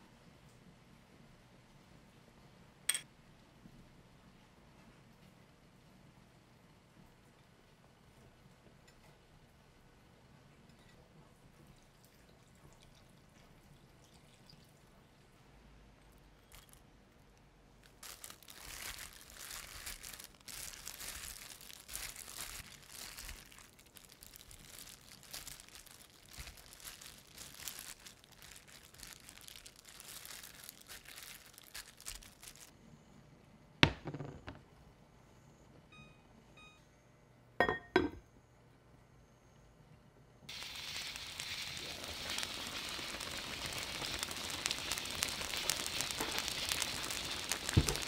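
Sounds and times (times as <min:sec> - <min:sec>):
crinkling handling noise: 0:16.1 - 0:32.7, 0:40.5 - 0:48.0.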